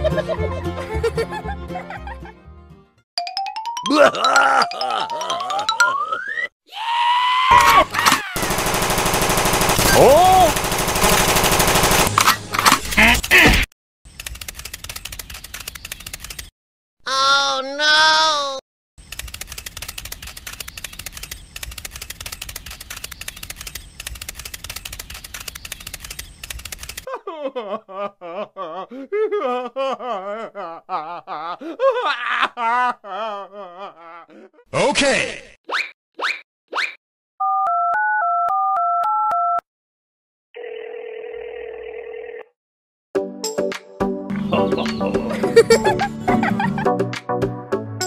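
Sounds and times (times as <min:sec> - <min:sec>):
telephone line tone: 0:40.6 - 0:42.5.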